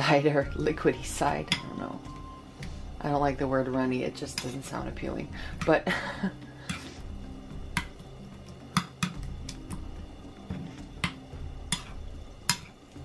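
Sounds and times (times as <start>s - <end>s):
spoon stirring porridge: 4.2s - 4.8s, 7.7s - 13.0s.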